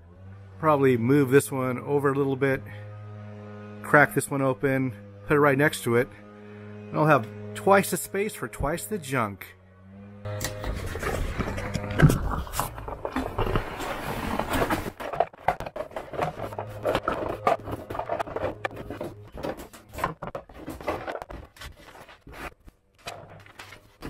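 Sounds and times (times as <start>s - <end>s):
cardboard tray scraping: 10.3s - 24.0s
plastic bins clacking: 10.3s - 24.0s.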